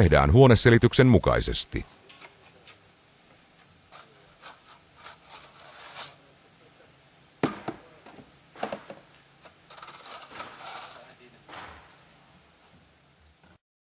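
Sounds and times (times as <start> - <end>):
trowel scraping plaster: 3.9 - 6.2, 9.5 - 11.1
sharp knocks: 7.4 - 7.8, 11.5 - 12.0.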